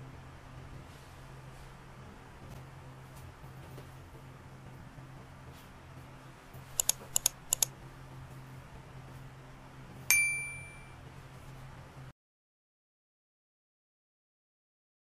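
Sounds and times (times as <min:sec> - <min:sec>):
computer mouse double clicks: 0:06.8 - 0:07.7
notification bell ding: 0:10.1 - 0:11.0.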